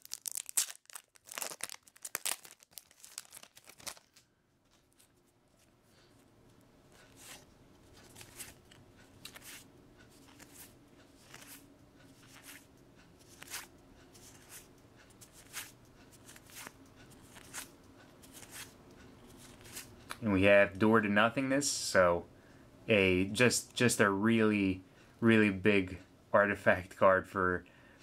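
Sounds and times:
cards swishing: 7.0s - 19.9s.

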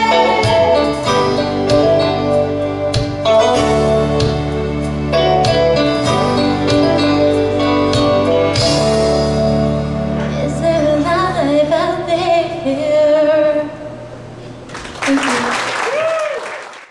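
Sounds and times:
woman singing: 0.0s - 1.8s, 10.3s - 13.8s
instrumental backing music: 0.0s - 13.6s.

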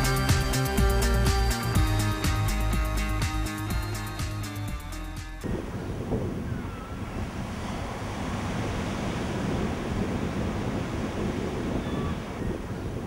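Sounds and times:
surf breaking on beach: 5.4s - 13.0s
wind on microphone: 5.4s - 13.0s.

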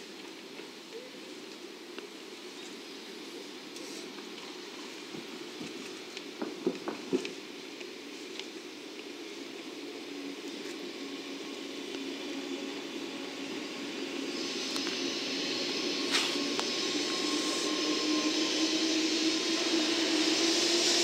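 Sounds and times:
train passing humming: 0.0s - 21.0s
high whine: 8.1s - 21.0s.

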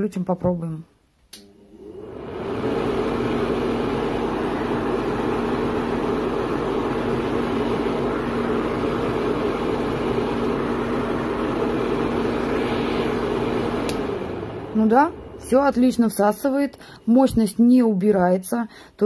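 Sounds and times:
dust extractor fan whirring: 1.4s - 18.0s.

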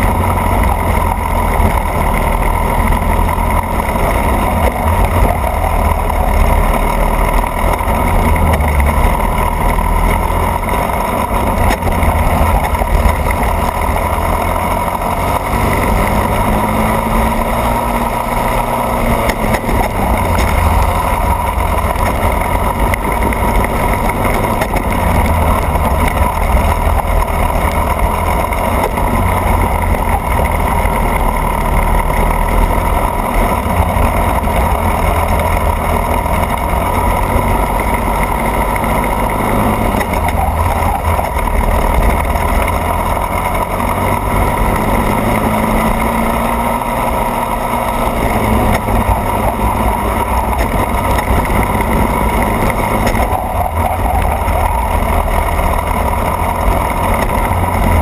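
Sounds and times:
kart engine running hard: 0.0s - 58.0s
tyre noise: 0.0s - 58.0s.

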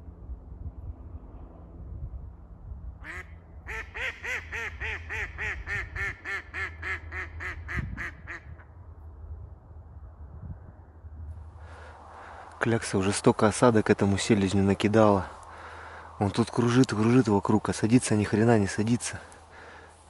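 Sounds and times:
low wind rumble: 0.0s - 20.0s
duck quacking: 3.0s - 8.5s.

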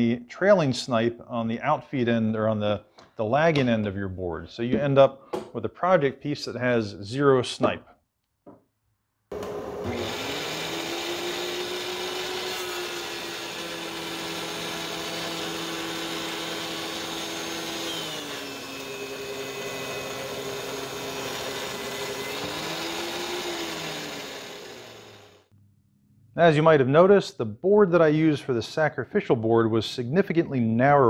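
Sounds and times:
thickness planer planing boards: 9.3s - 25.4s.

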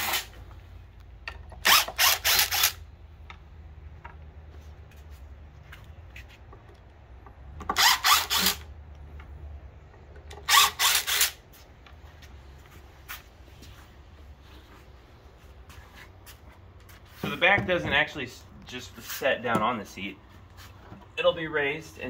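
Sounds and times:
impact driver bursts: 0.0s - 0.4s, 1.6s - 2.8s, 7.6s - 8.7s, 10.4s - 11.4s.

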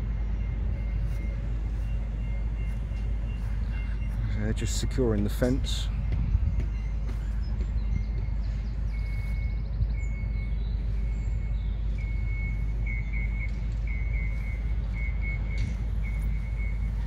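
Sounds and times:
steady low rumble: 0.0s - 17.0s
bird chirping: 5.7s - 17.0s.

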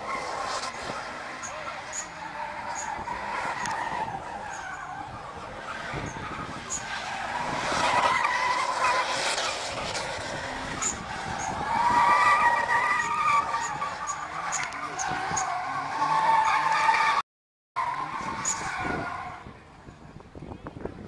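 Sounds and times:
tyres squealing: 0.0s - 9.7s, 10.4s - 17.2s.

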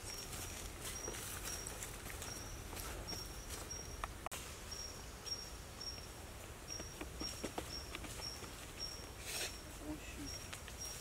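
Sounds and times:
footsteps on leaf litter: 0.0s - 3.7s.

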